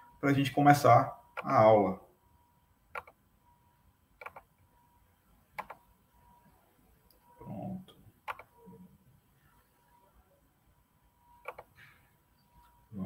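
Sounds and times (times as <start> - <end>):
computer mouse clicks: 2.9 - 3.2, 4.2 - 4.5, 5.6 - 5.8, 8.2 - 8.5, 11.4 - 11.9.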